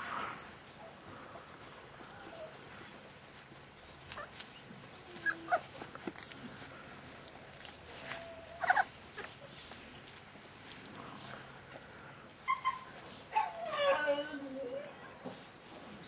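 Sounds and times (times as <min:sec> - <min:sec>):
puppies yipping and whining: 0:05.1 - 0:05.8, 0:08.0 - 0:09.4, 0:12.4 - 0:14.4.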